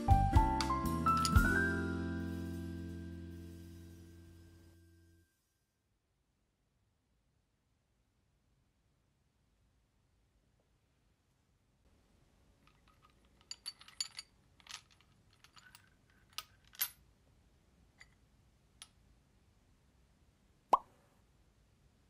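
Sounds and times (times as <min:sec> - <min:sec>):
ceramic pieces clinking: 0:01.1 - 0:01.5.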